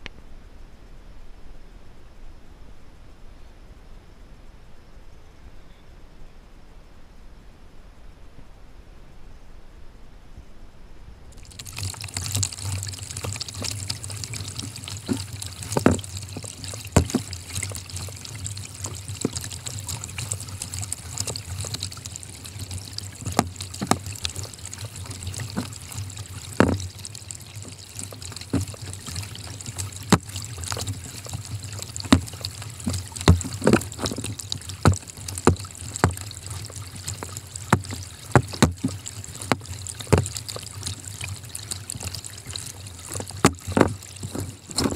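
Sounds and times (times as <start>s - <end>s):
paddle dipping into water: 11.4s - 44.9s
splashes and drips: 11.4s - 44.9s.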